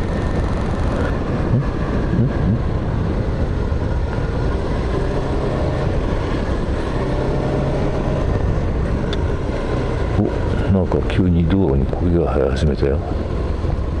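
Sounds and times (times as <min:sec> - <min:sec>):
scooter engine running: 0:00.0 - 0:03.6
wind buffeting microphone: 0:00.0 - 0:14.0.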